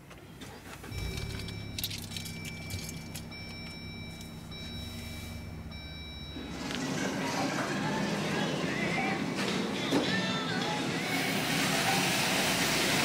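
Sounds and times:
car engine starting: 0.3 - 13.0
car engine idling: 0.7 - 9.2.

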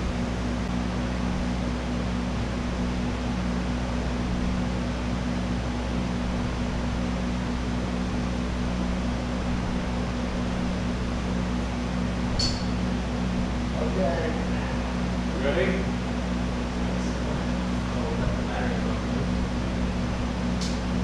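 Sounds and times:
low machine hum with hiss: 0.0 - 21.0
short click: 12.4 - 12.7.

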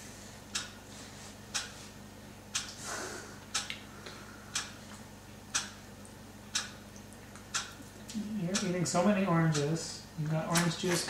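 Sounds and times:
clock ticking: 0.5 - 0.8, 1.5 - 1.7, 2.5 - 2.7, 3.5 - 3.7, 4.5 - 4.8, 5.5 - 5.8, 6.5 - 6.8, 7.5 - 7.8, 8.5 - 9.9.

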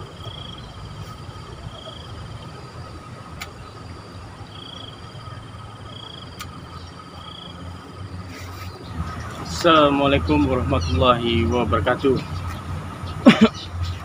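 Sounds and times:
insect trilling: 0.0 - 3.0, 3.6 - 12.4
sharp clicks: 3.3 - 3.6, 6.2 - 6.7.

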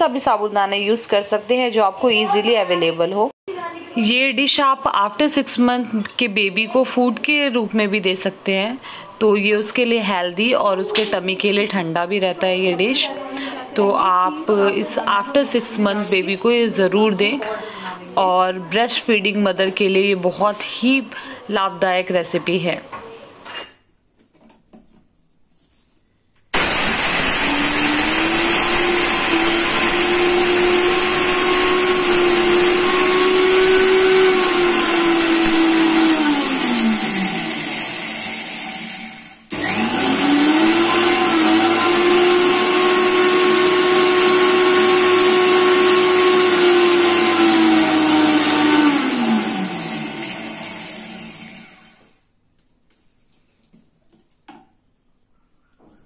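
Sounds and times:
mixer grinder motor grinding: 26.6 - 52.2.

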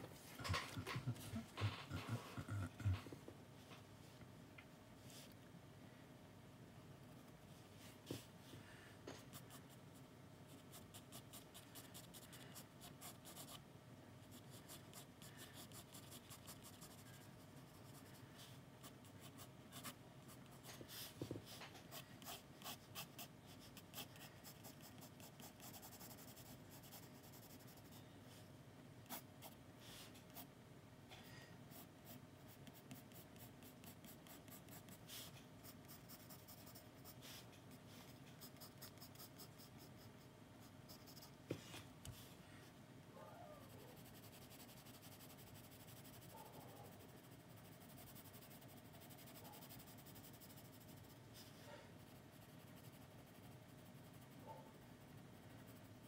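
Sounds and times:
pencil sketching on paper: 21.8 - 27.9, 31.7 - 40.1, 47.0 - 51.2.

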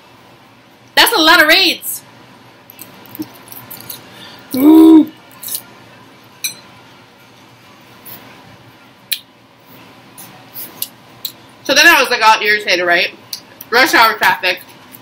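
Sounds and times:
person humming: 4.5 - 5.2.

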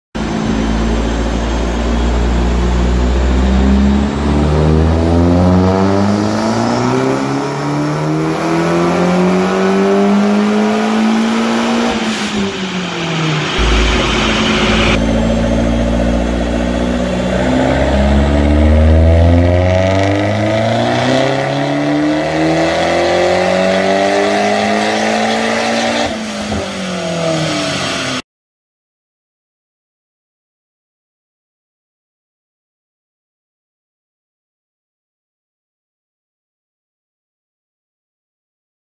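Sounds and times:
turbocharged car engine revving: 0.4 - 28.2.

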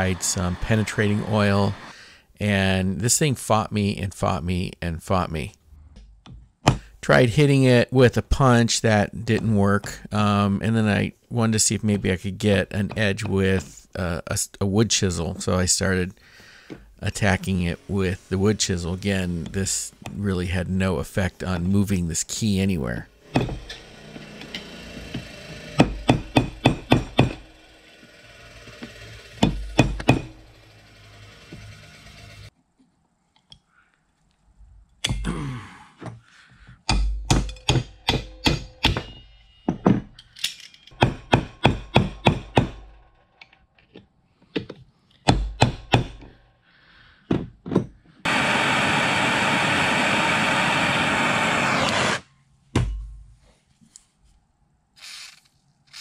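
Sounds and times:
hammer striking chisel: 23.3 - 27.6, 28.7 - 30.4, 36.9 - 40.1, 40.9 - 42.9, 45.3 - 46.3.

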